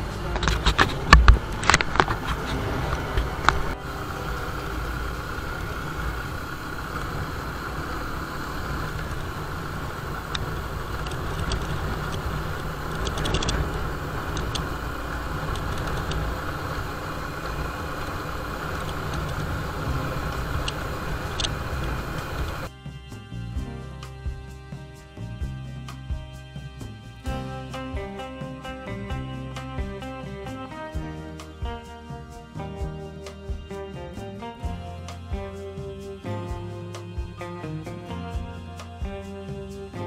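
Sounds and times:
wind noise: 0.0s - 22.7s
motorcycle engine running: 0.0s - 40.0s.

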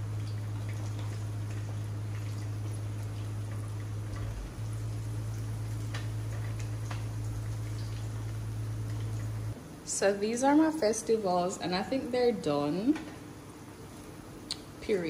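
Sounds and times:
dumplings crackling in hot oil: 0.0s - 9.6s
steady low hum: 0.0s - 15.0s.

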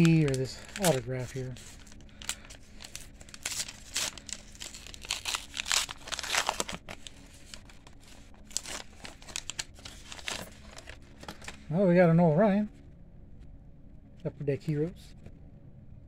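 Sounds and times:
foil wrapper crinkling and tearing: 0.0s - 11.6s.

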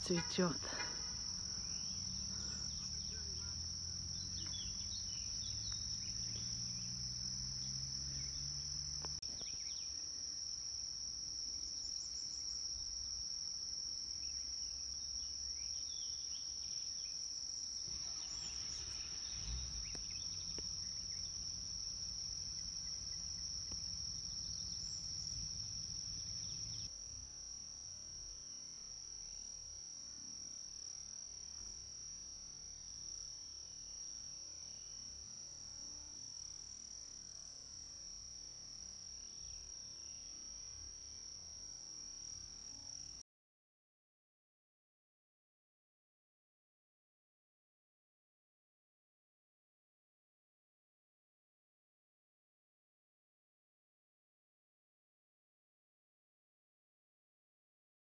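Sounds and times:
insects droning: 0.0s - 43.2s.

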